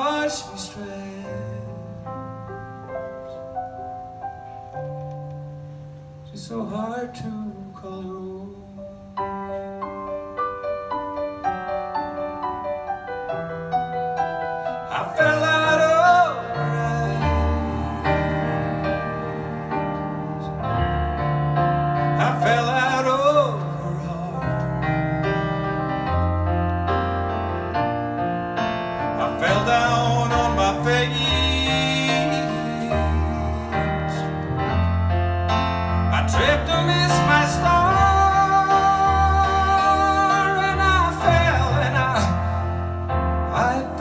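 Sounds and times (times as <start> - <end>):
piano chords: 0.0 - 44.0
bass line: 15.2 - 44.0.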